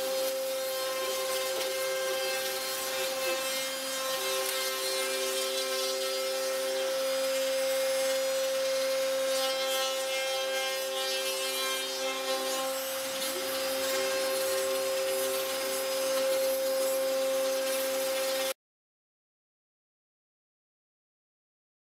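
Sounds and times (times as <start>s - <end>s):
hiss of cutting wood: 0.0s - 18.6s
router spindle high whine: 0.0s - 18.6s.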